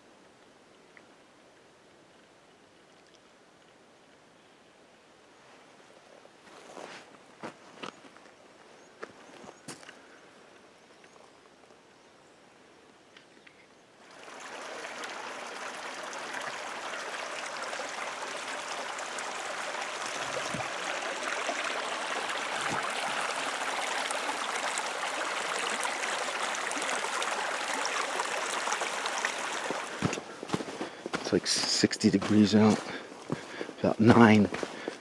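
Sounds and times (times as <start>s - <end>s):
creek trickling over rocks: 14.0s - 35.0s
dull footsteps on planks: 30.0s - 35.0s.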